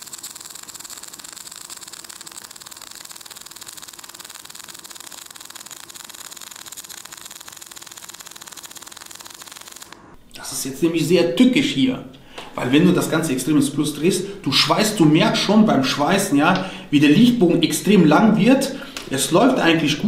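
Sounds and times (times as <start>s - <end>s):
welding arc hissing and crackling: 0.0s - 10.1s.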